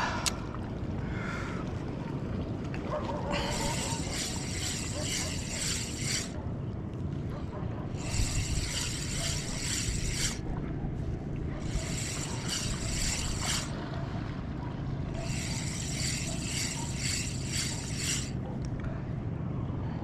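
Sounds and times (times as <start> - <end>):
fishing reel whirring: 3.3 - 6.4, 8.0 - 10.6, 11.6 - 13.8, 15.1 - 18.4.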